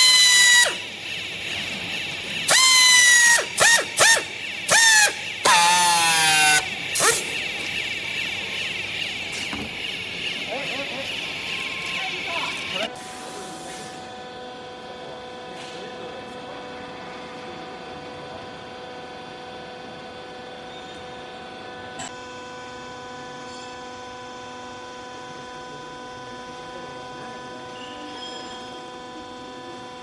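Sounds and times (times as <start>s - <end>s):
electric motor and pump humming: 0.0s - 30.0s.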